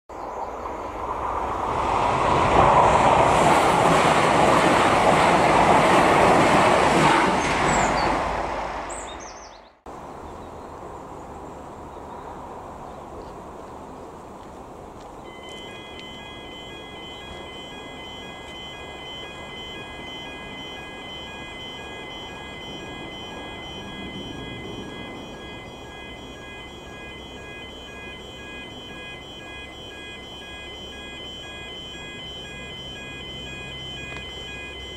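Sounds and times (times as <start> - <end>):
train passing rumble: 0.3 - 9.1, 15.3 - 34.9
level crossing warning alarm: 15.2 - 34.9.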